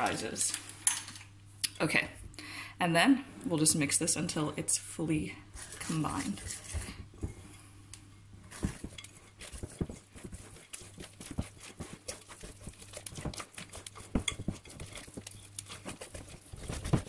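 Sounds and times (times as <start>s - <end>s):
whisk scraping glass bowl: 5.6s - 7.4s, 8.5s - 17.0s.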